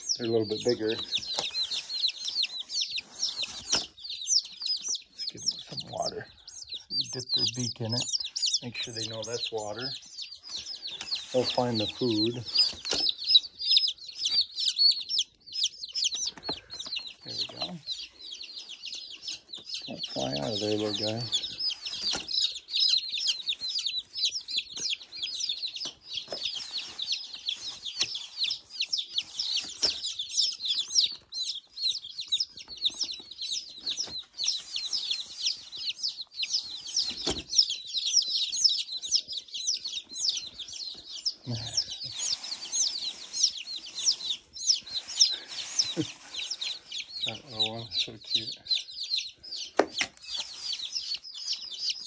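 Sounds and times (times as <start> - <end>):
chicks peeping: 0.0 - 52.0.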